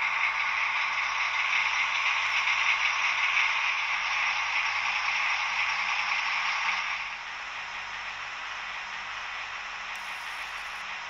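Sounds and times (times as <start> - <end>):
model train running on track: 0.0 - 11.0.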